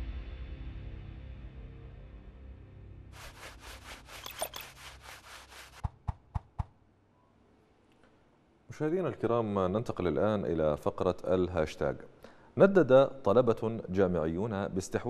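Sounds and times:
music: 0:00.0 - 0:03.6
scratchy pulsing rubbing noise: 0:03.2 - 0:06.7.

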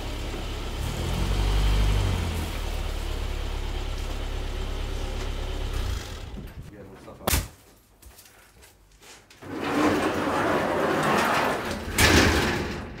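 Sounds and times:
garage door rumbling scrape: 0:09.3 - 0:13.0
garage door banging shut: 0:09.6 - 0:13.0.

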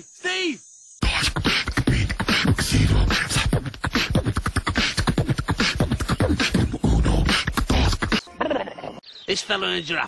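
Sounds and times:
beatboxing: 0:01.0 - 0:08.3.

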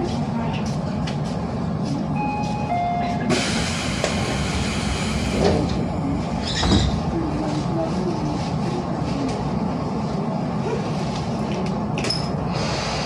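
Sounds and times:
train doors closing with air hiss: 0:02.3 - 0:07.2, 0:12.0 - 0:13.0.

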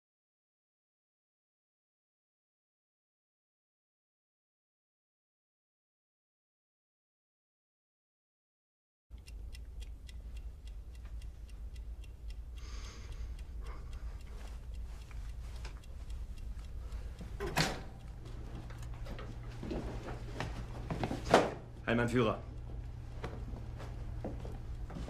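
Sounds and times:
wall clock ticking: 0:09.1 - 0:25.0
low room hum: 0:09.2 - 0:25.0.

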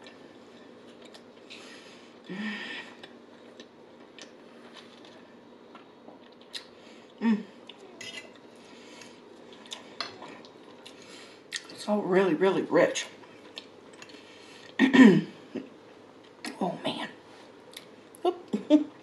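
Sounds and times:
quiet chewing: 0:00.0 - 0:11.8, 0:13.2 - 0:14.8.

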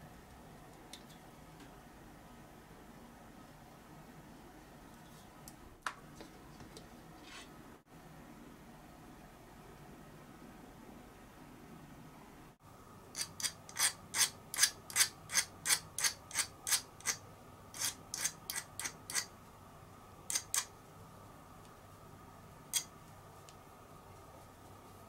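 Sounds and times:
metal file scraping metal: 0:07.2 - 0:07.6, 0:13.2 - 0:17.2, 0:17.8 - 0:19.3, 0:20.3 - 0:20.7.

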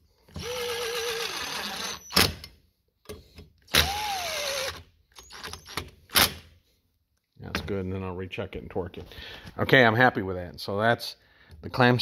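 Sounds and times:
electric screwdriver whining: 0:00.3 - 0:02.4, 0:03.7 - 0:05.9.

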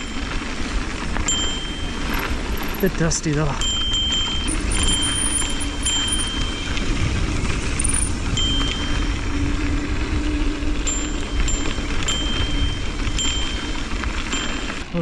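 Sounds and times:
thin high tone: 0:00.0 - 0:15.0
tyres rumbling on dirt: 0:00.0 - 0:15.0
wind rushing over microphone: 0:03.6 - 0:14.9.

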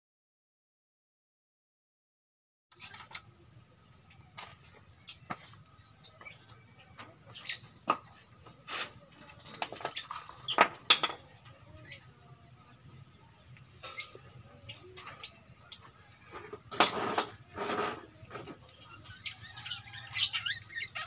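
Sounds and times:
budgerigars chirping: 0:18.9 - 0:21.0.

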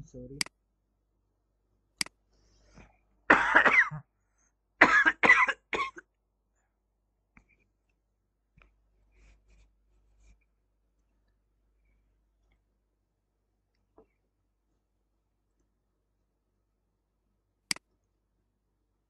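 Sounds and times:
man coughing: 0:03.3 - 0:04.1, 0:04.8 - 0:06.0.

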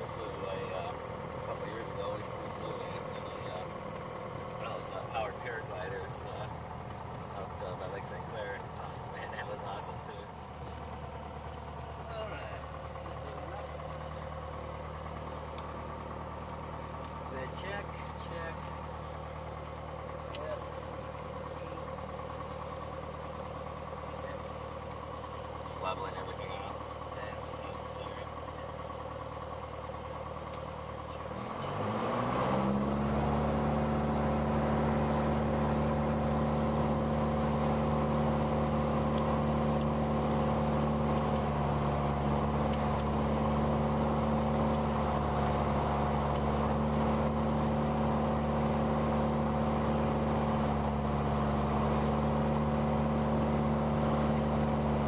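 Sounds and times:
aircraft engine and propeller: 0:00.0 - 0:03.9.

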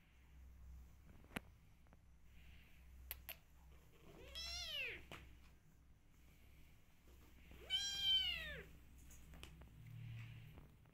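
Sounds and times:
cat meowing: 0:04.2 - 0:05.0, 0:07.6 - 0:08.7.

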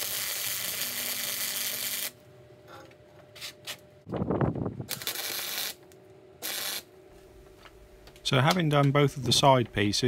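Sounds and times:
welding arc crackling hiss: 0:00.0 - 0:02.2, 0:04.9 - 0:05.8, 0:06.4 - 0:06.9.

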